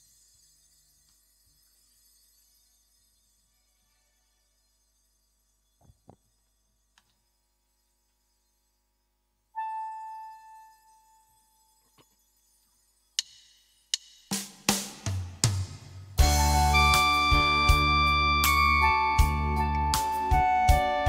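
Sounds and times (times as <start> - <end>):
band music with drums: 14.3 - 21.0
ringing musical note: 16.2 - 21.0.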